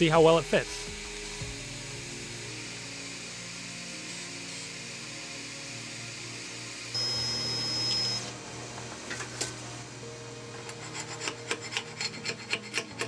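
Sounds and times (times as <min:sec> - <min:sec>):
steady high whine: 0:06.2 - 0:08.4.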